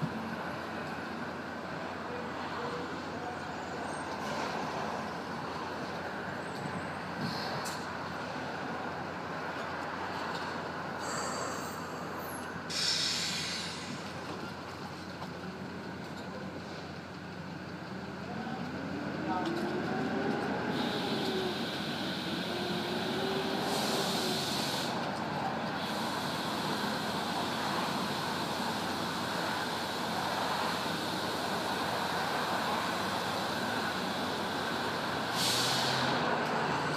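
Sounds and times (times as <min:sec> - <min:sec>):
city background hum: 0:00.0 - 0:36.9
rushing outdoor background noise: 0:00.0 - 0:36.9
air hissing bursts: 0:12.7 - 0:14.0, 0:20.7 - 0:25.0, 0:25.8 - 0:36.2.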